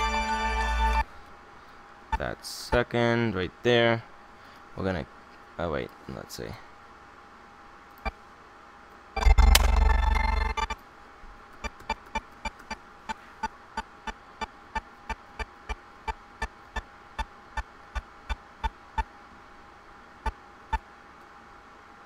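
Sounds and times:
faint steady hum: 0:00.0 - 0:22.0
sharp computer clicks: 0:09.2 - 0:10.8, 0:11.6 - 0:12.8.

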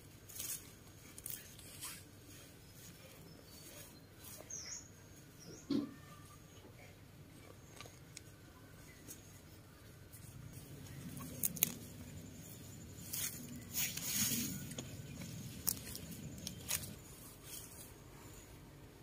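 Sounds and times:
leafy tops rustling: 0:00.0 - 0:06.3, 0:07.3 - 0:18.7
dirt scraping and crumbling: 0:10.1 - 0:18.6.

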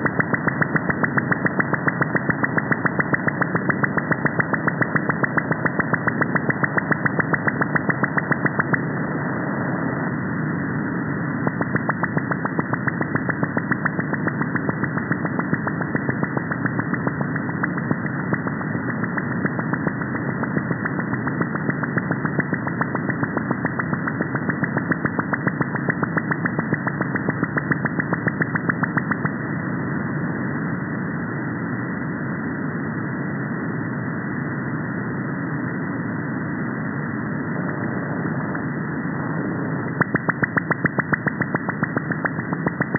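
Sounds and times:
shortwave receiver hiss: 0:00.0 - 0:42.9
fast radar pulses: 0:39.3 - 0:42.9.

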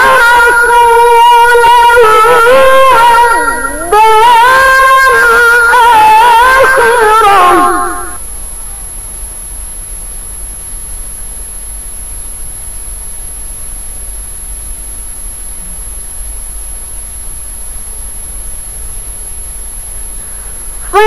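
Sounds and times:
faint high-pitched whine: 0:00.0 - 0:21.0
low electrical hum: 0:00.0 - 0:21.0
background hiss: 0:05.1 - 0:21.0.

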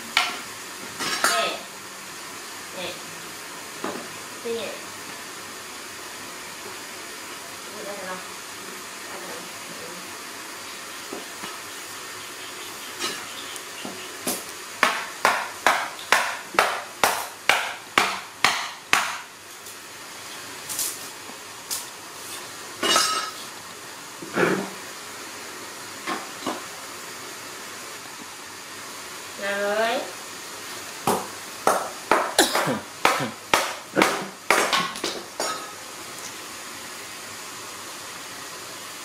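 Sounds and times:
steady hiss: 0:00.0 - 0:39.0
sharp knocks: 0:31.1 - 0:35.2.

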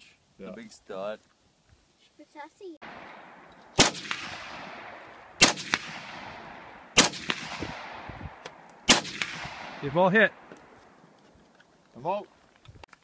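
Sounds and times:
rifle shots echoing: 0:02.8 - 0:11.0.

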